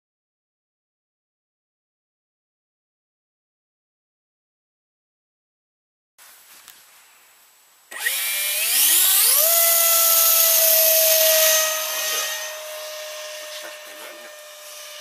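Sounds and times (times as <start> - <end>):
electric ducted fan whine: 7.9 - 15.0.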